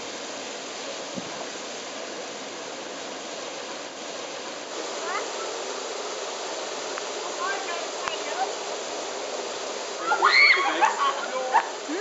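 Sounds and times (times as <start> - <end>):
fountain water jets splashing: 3.8 - 5.5, 6.9 - 12.0.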